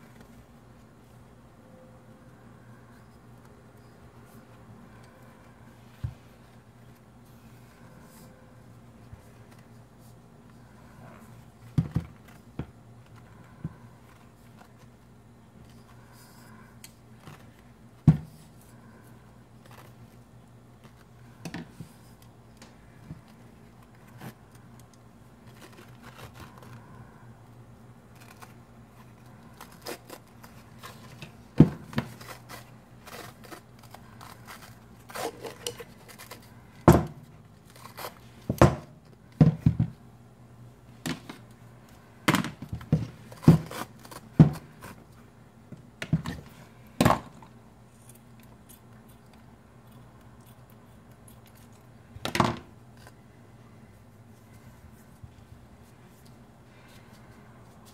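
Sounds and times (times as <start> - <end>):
faint steady hum: 0.0 - 57.9
tape rustling and peeling: 2.8 - 39.3, 41.3 - 45.4.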